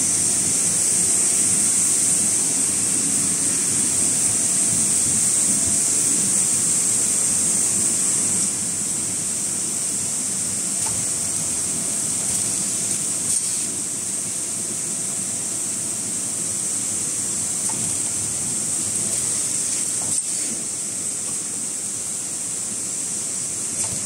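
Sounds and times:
production line machine noise: 0:00.0 - 0:24.0.

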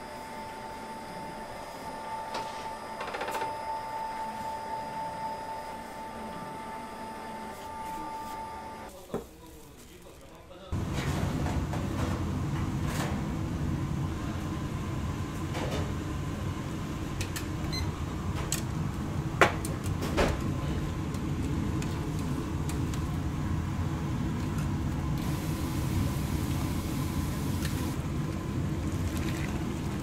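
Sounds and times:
low mechanical rumble: 0:10.8 - 0:30.0
faint steady hum: 0:20.6 - 0:30.0.

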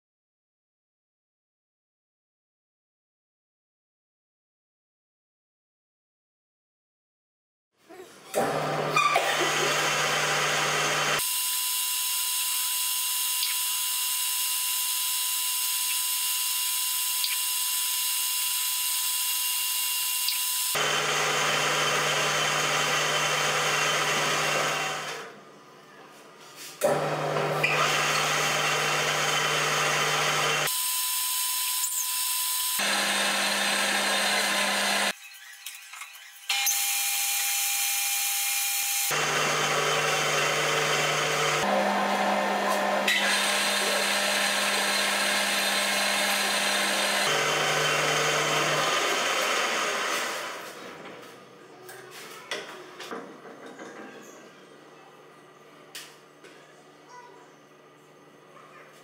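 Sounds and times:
lathe motor hum: 0:08.5 - 0:11.2, 0:20.8 - 0:25.2, 0:26.9 - 0:30.7, 0:32.8 - 0:35.1, 0:39.1 - 0:50.6.

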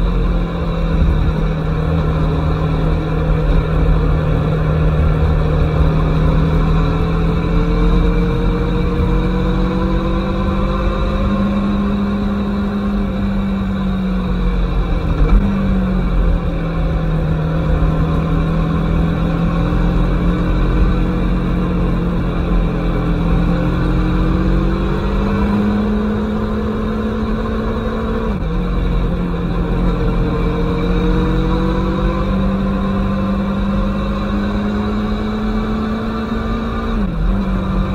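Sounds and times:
wind rumble: 0:00.0 - 0:35.6
motorcycle engine running: 0:00.0 - 0:37.9.

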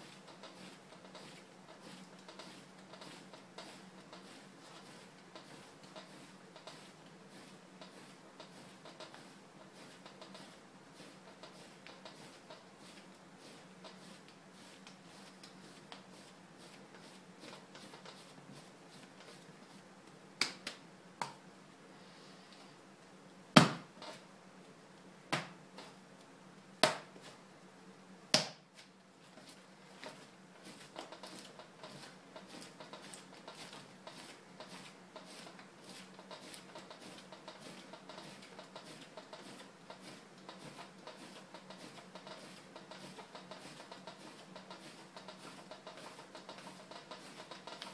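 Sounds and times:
sharp slaps of clay: 0:23.6 - 0:23.9, 0:25.3 - 0:25.6, 0:26.8 - 0:27.1, 0:28.3 - 0:28.6.

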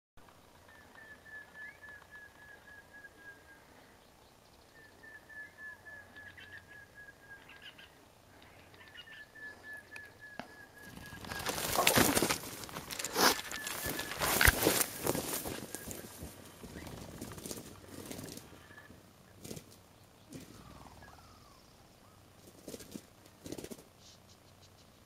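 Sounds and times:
quail whistled calls: 0:00.7 - 0:03.9, 0:04.7 - 0:19.4, 0:20.3 - 0:22.3
rustling in dry grass: 0:10.8 - 0:20.7.

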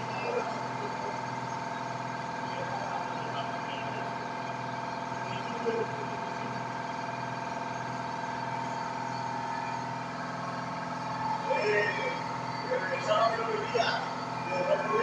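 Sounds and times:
laser engraver motors and fan humming: 0:00.0 - 0:15.0.

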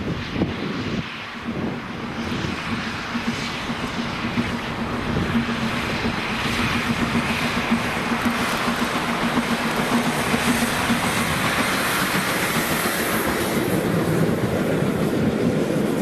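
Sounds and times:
steam locomotive rumbling: 0:00.0 - 0:16.0.

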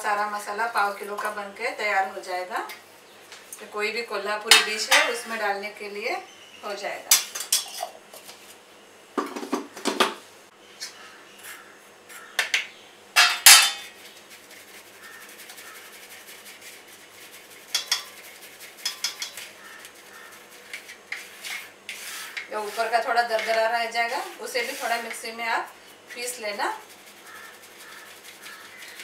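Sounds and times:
steel kitchenware clinking: 0:04.5 - 0:05.4, 0:07.1 - 0:08.0, 0:13.2 - 0:14.0, 0:17.7 - 0:19.8.

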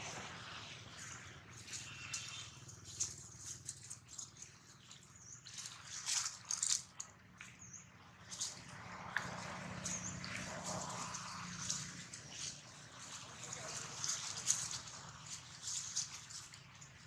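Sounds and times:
dry leaves crackling and rustling: 0:00.0 - 0:07.0, 0:08.2 - 0:17.0.

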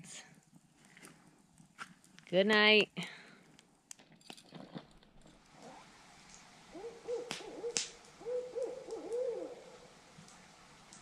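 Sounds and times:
owl hooting: 0:06.6 - 0:10.0.

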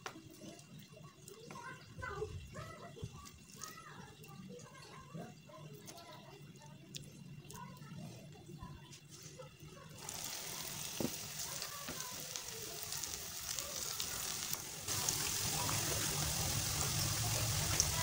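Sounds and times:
food deep-frying in hot oil: 0:09.7 - 0:18.0.

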